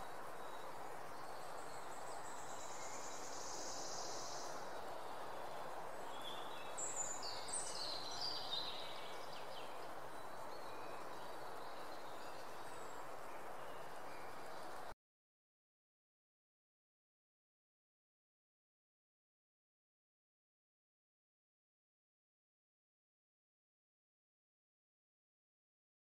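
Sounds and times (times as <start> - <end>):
steady background hiss: 0.0 - 15.0.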